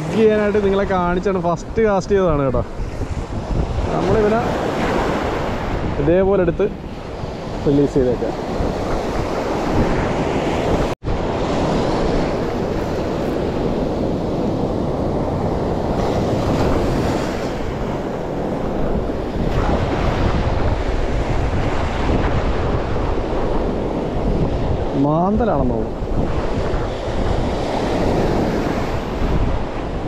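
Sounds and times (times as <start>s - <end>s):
wind buffeting microphone: 0.0s - 30.0s
surf breaking: 8.6s - 24.9s.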